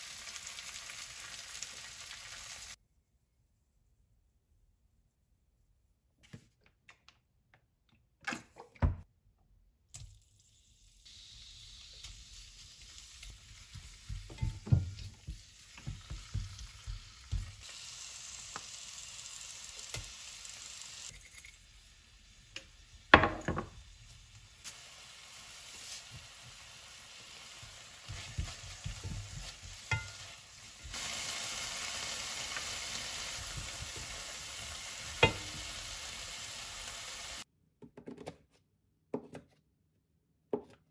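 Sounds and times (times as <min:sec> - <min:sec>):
food sizzling in a frying pan: 0:00.0 - 0:02.8, 0:10.4 - 0:37.5.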